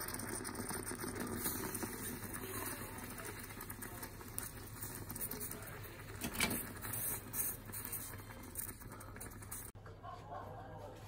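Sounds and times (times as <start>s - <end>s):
moka pot sputtering and gurgling: 0.0s - 9.8s.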